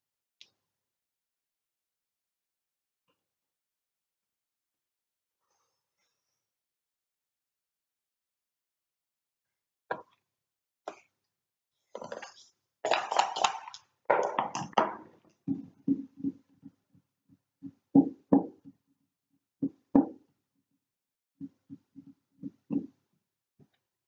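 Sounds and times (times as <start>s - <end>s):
dice rattling in a cup: 12.9s - 14.7s.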